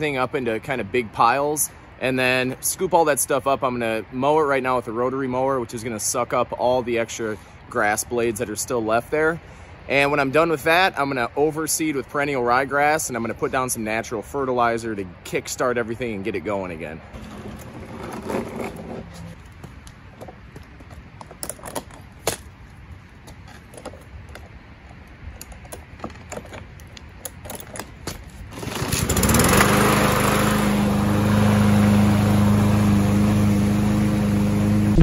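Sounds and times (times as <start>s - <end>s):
lawn mower engine running: 17.2s - 19.4s, 28.5s - 35.0s.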